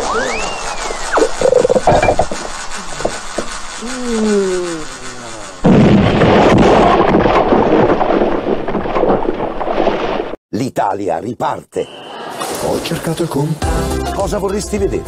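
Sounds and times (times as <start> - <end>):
tone sliding down in pitch: 0.0 - 2.9
loud explosion blast: 5.6 - 9.6
rumble of falling debris: 5.6 - 10.4.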